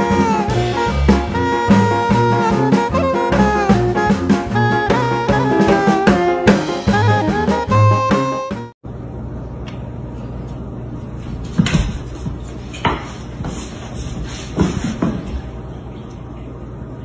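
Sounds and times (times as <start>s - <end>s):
dog paws thumping on wooden floor: 11.5s - 15.5s.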